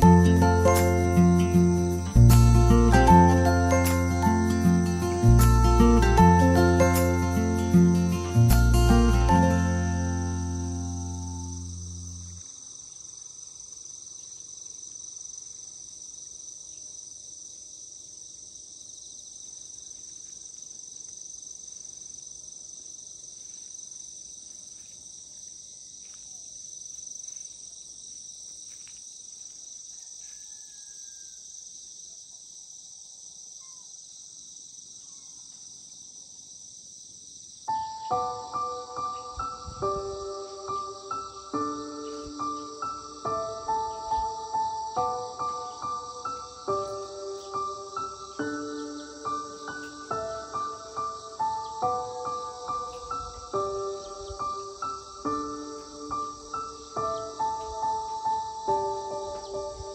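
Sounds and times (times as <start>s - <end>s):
background music: 0.0s - 12.4s, 37.8s - 59.9s
crickets trilling: 0.0s - 59.9s.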